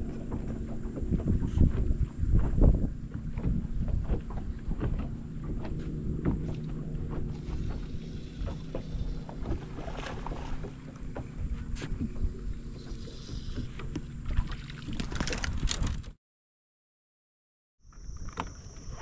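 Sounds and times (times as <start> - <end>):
low steady hum: 0.0 - 14.9
water noise: 0.0 - 16.2
wind: 0.0 - 16.2, 17.8 - 19.0.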